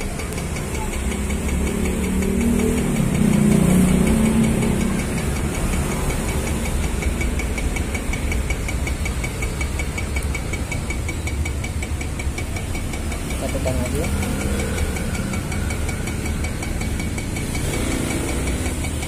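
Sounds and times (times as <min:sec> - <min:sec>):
espresso machine pump buzzing: 0:00.0 - 0:19.0.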